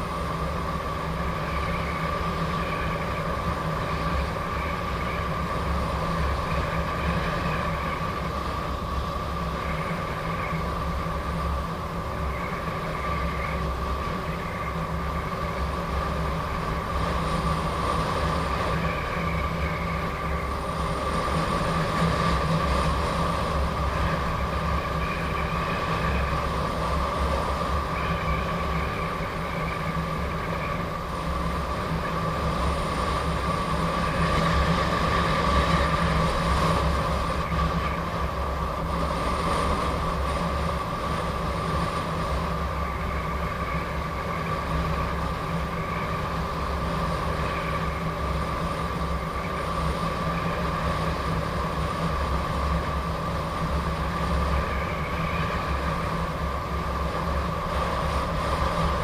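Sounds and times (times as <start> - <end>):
high motor whine: 0.0 - 59.0
wind buffeting microphone: 0.0 - 59.0.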